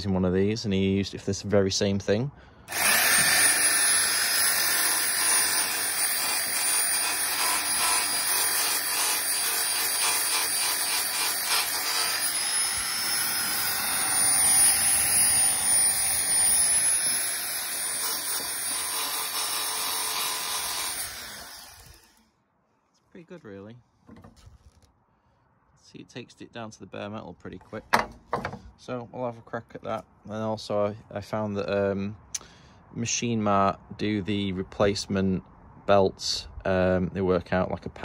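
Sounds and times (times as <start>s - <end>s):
belt sander grinding metal: 2.7s - 22.2s.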